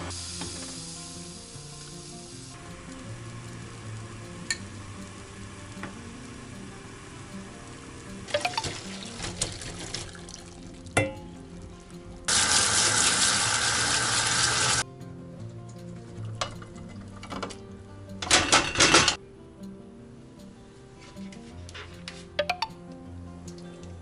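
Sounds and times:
tap water running into sink: 0.0 - 3.0, 8.2 - 10.9, 12.3 - 14.8
background music: 0.0 - 24.0
food clattering into frying pan: 8.3 - 10.3, 18.2 - 19.2.

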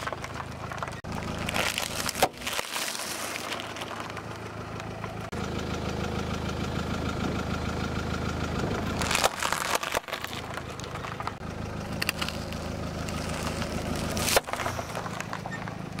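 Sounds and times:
tyre crushing cereal packets: 0.0 - 4.5, 9.0 - 16.0
car engine idling: 0.0 - 16.0.

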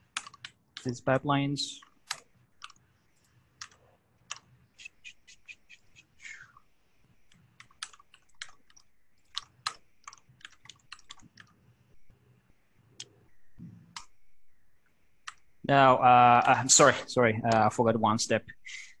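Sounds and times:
keyboard typing: 0.0 - 1.0, 1.8 - 2.8, 3.6 - 6.1, 7.3 - 11.6, 15.2 - 15.4.

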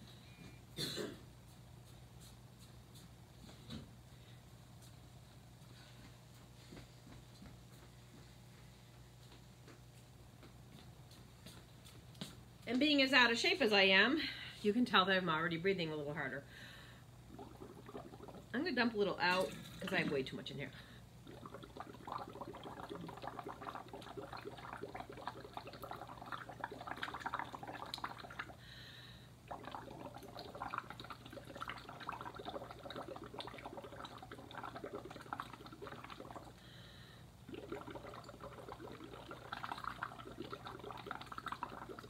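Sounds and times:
bubbling through a straw: 17.2 - 28.6, 29.4 - 36.6, 37.4 - 42.0.

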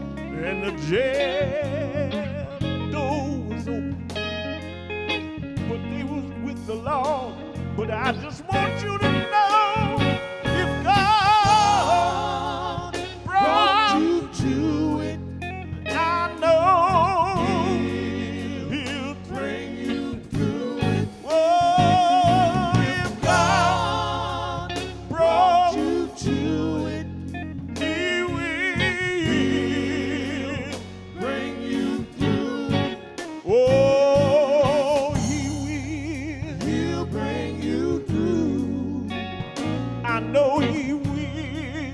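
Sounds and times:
men singing gospel: 0.0 - 4.0, 5.6 - 41.9
electric bass: 0.0 - 41.9
electric guitar: 0.0 - 41.9
drum kit beat: 19.8 - 25.3, 31.6 - 37.2.

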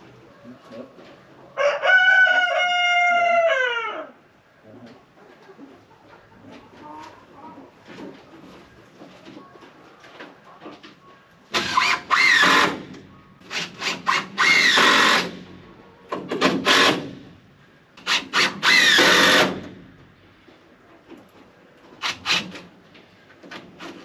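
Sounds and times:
power drill driving screws: 11.5 - 12.9, 13.5 - 15.4, 16.3 - 17.2, 18.0 - 19.7, 22.0 - 22.6.

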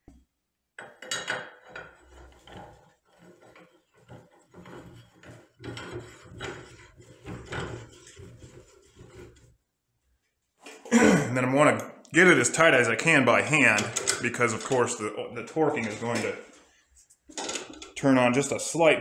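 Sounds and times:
metal scraping: 1.7 - 9.6, 12.6 - 18.3
hand handling noise: 13.6 - 18.1.

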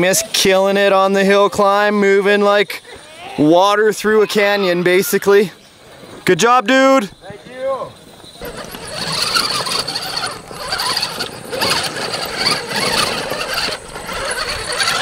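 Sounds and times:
toy truck electric motor whining: 8.2 - 15.0.

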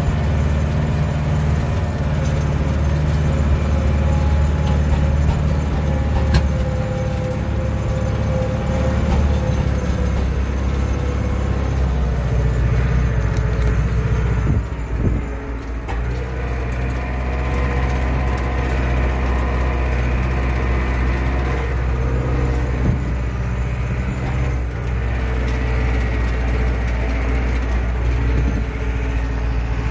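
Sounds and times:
tractor diesel engine running: 0.0 - 29.9.

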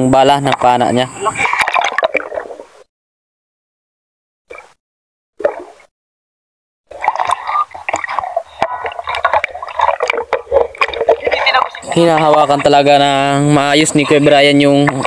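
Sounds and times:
water blips: 0.0 - 2.8, 5.4 - 5.9, 6.9 - 15.0
water splashing and bubbling: 0.0 - 2.9, 4.5 - 4.8, 5.4 - 5.9, 6.9 - 15.0.

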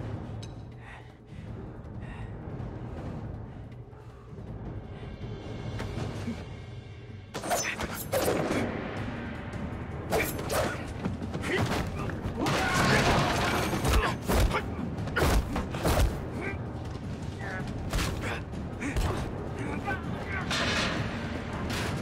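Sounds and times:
background music: 0.0 - 22.0
sharp blows and body impacts: 10.1 - 16.5.

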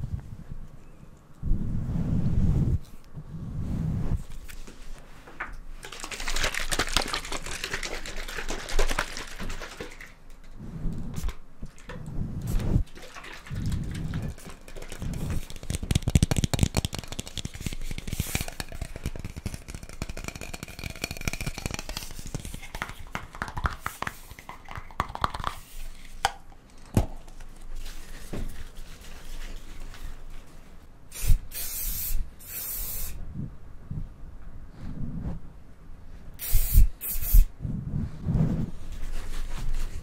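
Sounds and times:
crackling and rustling: 4.2 - 30.9
hair spray hisses: 31.1 - 33.2, 36.4 - 37.5.

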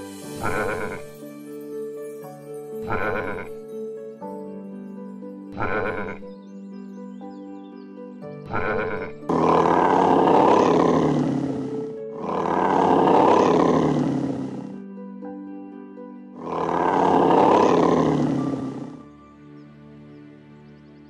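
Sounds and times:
background music with held notes: 0.0 - 21.0
animal roars: 0.4 - 1.1, 2.8 - 3.5, 5.6 - 6.2, 8.5 - 14.8, 16.4 - 19.1.

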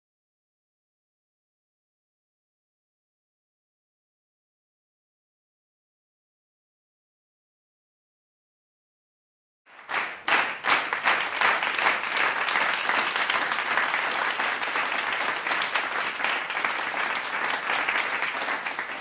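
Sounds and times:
people clapping: 9.7 - 19.0.

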